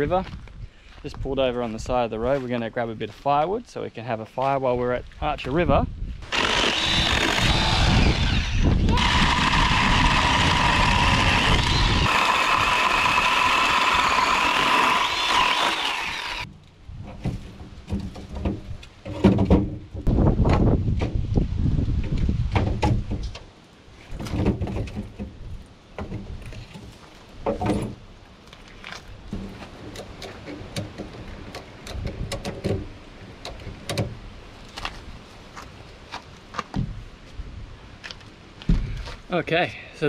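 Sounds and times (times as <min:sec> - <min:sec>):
chainsaw cutting wood: 0:06.2 - 0:16.5
firewood knocks and thuds: 0:16.5 - 0:23.5, 0:24.1 - 0:28.0, 0:28.9 - 0:34.2, 0:36.5 - 0:37.0, 0:38.6 - 0:39.2.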